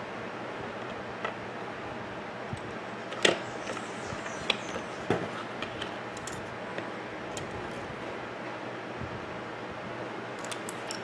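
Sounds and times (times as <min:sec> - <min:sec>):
screwdriver clicking on metal parts: 0:10.4 - 0:11.0.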